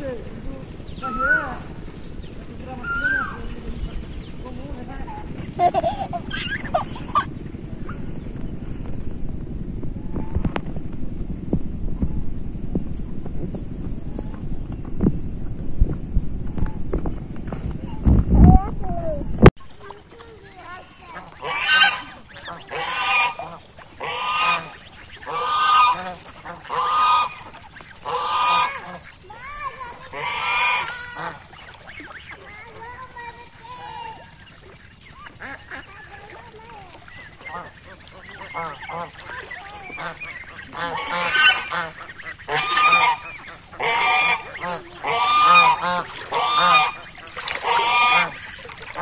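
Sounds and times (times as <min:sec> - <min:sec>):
geese honking: 0:00.0 - 0:08.0, 0:21.0 - 0:49.0.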